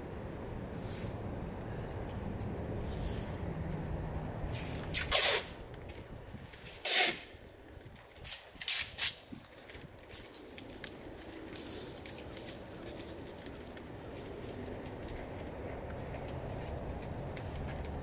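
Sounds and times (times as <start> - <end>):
masking tape ripping off roll: 4.5 - 5.6, 6.7 - 7.3, 8.3 - 9.3.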